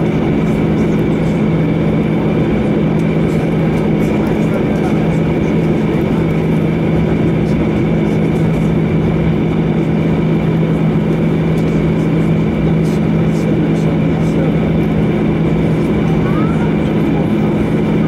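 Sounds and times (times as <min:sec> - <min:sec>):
high engine whine: 0:00.0 - 0:18.0
jet engines idling: 0:00.0 - 0:18.0.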